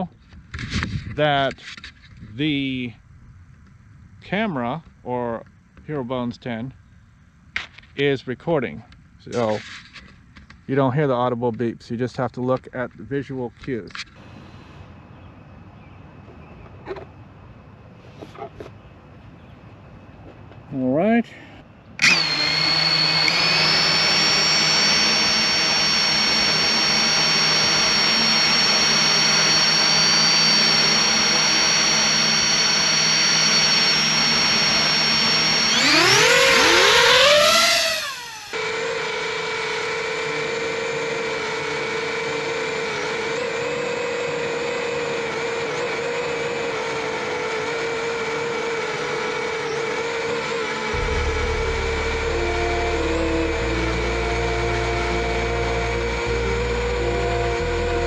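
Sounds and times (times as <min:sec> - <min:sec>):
drone propeller drone in flight: 0:22.0 - 0:58.0
drone propellers whining: 0:22.0 - 0:58.0.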